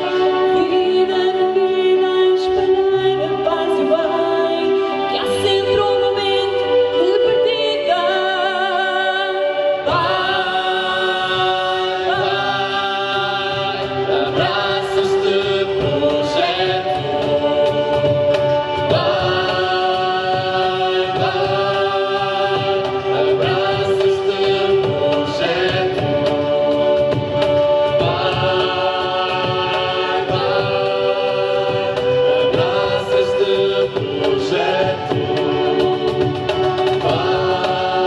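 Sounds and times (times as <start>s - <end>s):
woman singing: 0.0s - 17.8s
violin: 0.0s - 38.0s
cajon drum: 12.1s - 38.0s.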